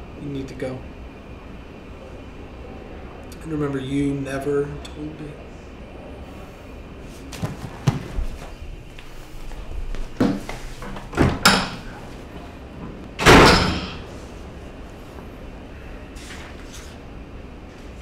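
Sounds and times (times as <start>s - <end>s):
footsteps: 7.0s - 13.0s
door slamming: 13.2s - 14.0s.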